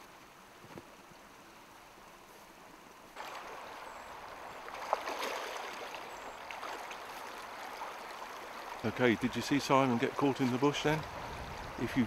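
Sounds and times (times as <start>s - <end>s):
stream running over stones: 0.0s - 12.0s.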